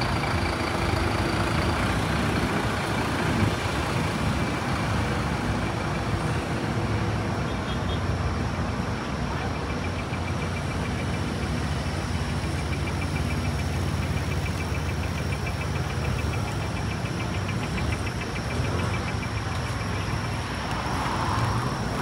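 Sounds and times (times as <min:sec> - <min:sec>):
street traffic engines: 0:00.0 - 0:22.0
fast high ticking: 0:09.6 - 0:22.0.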